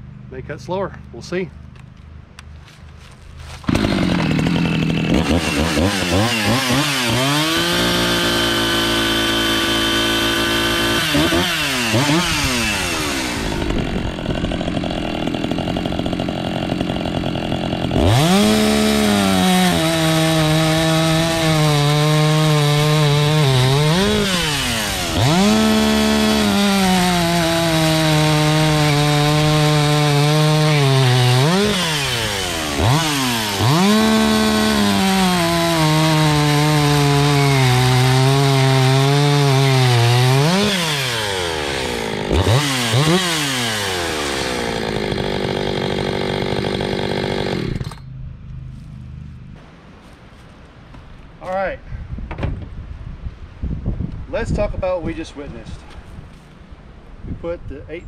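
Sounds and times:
chainsaw cutting wood: 2.7 - 48.1.

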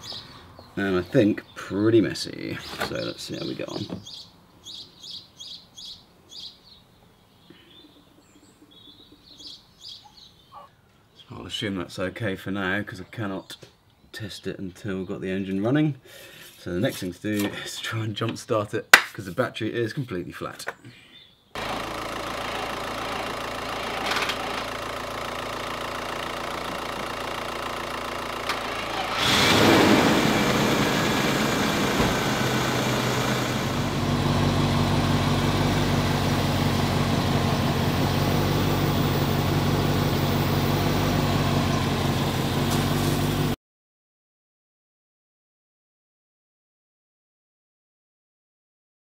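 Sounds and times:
car engine idling: 21.6 - 43.6
engine cranking and starting: 21.6 - 43.6.

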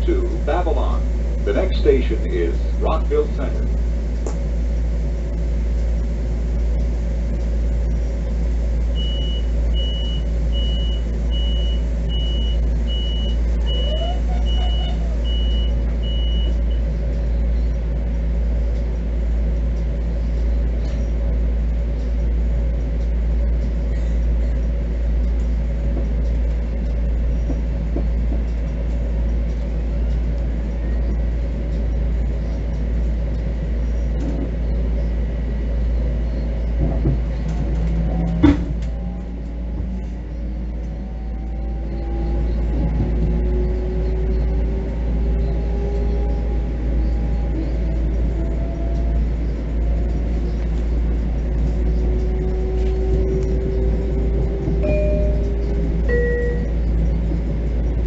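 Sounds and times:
train rumble and hum: 0.0 - 58.0
short high beeps: 56.1 - 56.7.

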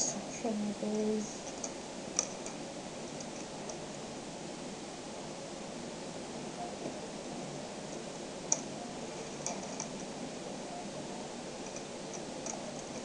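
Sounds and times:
steady hiss: 0.0 - 13.0
magnetic balls clicking together: 1.4 - 3.8, 7.9 - 10.1, 11.6 - 13.0.

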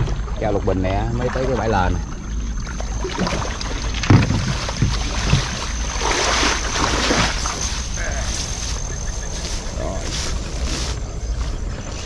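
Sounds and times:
water sloshing: 0.0 - 12.0
splashes or knocks: 2.6 - 7.8
rustling through tall grass: 2.6 - 12.0
plants rustling: 2.9 - 12.0.

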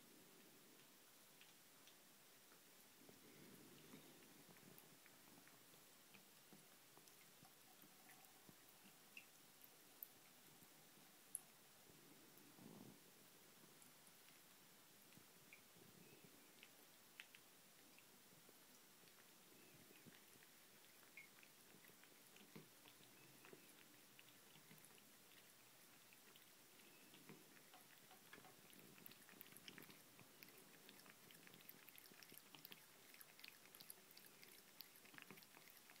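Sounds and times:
cat lapping water: 13.5 - 36.0
thin trickle of tap water: 13.8 - 36.0.

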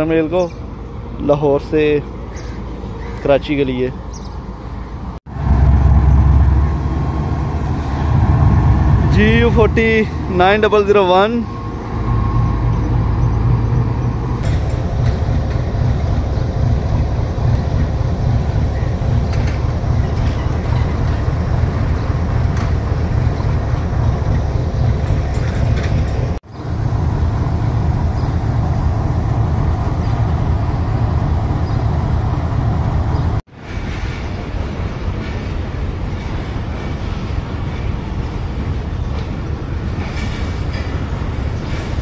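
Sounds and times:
diesel locomotive engine rumbling: 0.0 - 42.0.

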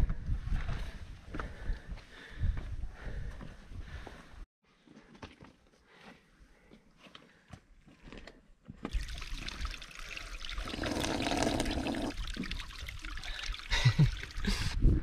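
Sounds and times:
water trickling down rock: 8.8 - 14.6
man drinking: 8.9 - 15.0.

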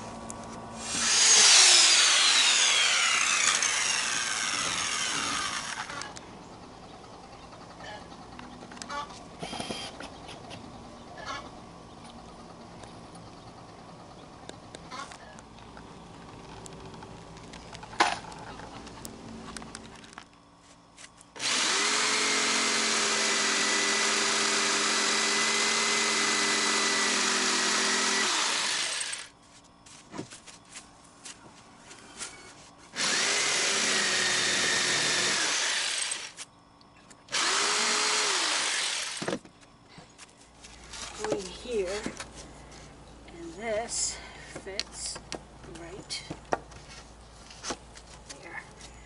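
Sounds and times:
electric saw cutting board: 0.8 - 6.1, 21.4 - 29.3, 33.0 - 36.4, 37.3 - 39.4.

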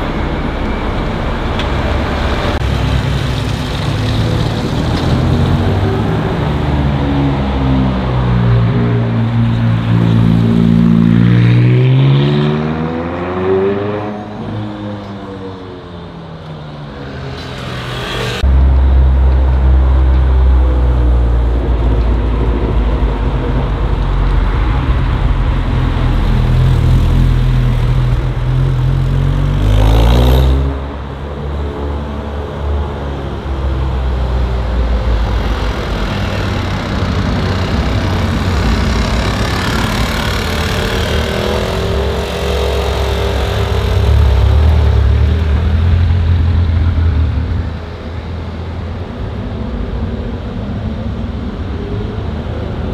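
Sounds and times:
loud low engine rumble: 0.0 - 11.1, 32.4 - 52.9
supercar engines revving: 31.7 - 52.9.

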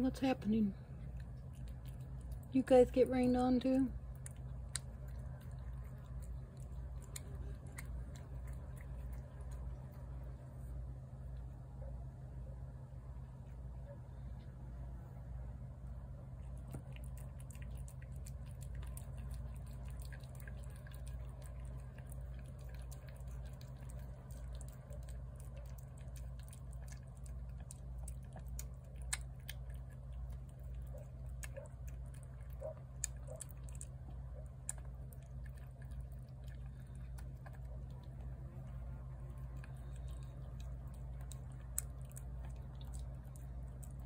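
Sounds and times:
cat chewing and lapping food: 0.0 - 44.0.

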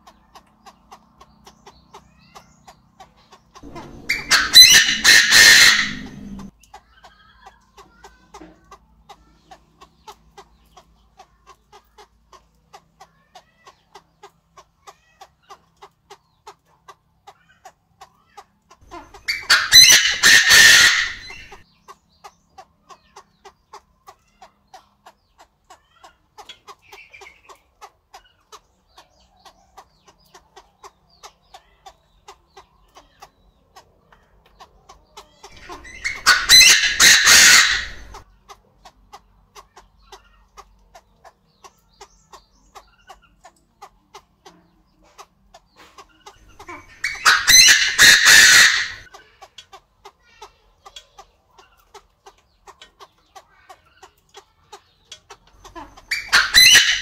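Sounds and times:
bird calling loudly: 0.0 - 6.5, 18.8 - 21.7, 35.1 - 38.3, 46.3 - 49.1, 55.6 - 57.0.

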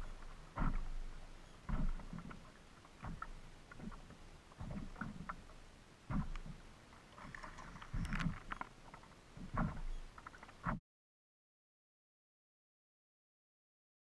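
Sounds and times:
knocks and clicks from boat gear: 0.0 - 10.8
waves slapping kayak hull: 0.0 - 10.8.

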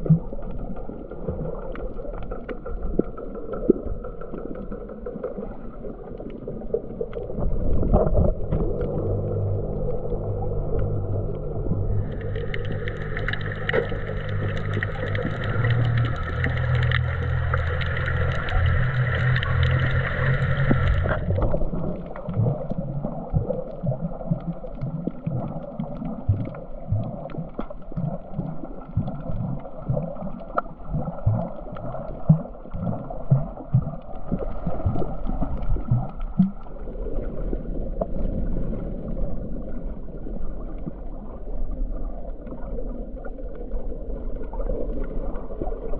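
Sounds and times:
underwater rumble: 0.0 - 45.9
low water surges: 4.6 - 45.9
steady hum: 6.5 - 24.6
faint clicks: 12.1 - 22.4.

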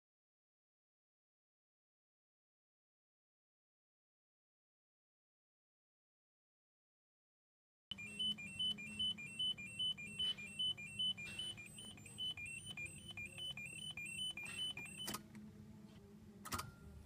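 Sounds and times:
two-tone warning beeping: 7.9 - 15.2
faint steady hum: 7.9 - 17.0.

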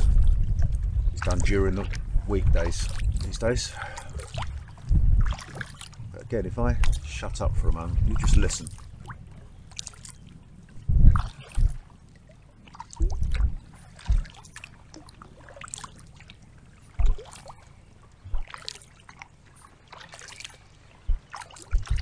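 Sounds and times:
water lapping and dripping: 0.0 - 22.0
low thuds: 4.2 - 9.4, 10.8 - 11.9, 13.0 - 14.6, 21.0 - 22.0.

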